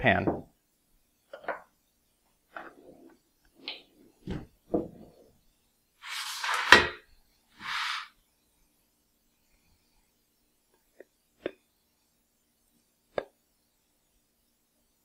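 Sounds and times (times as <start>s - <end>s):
metal pan scraping across counter: 6.0s - 7.0s, 7.6s - 8.1s.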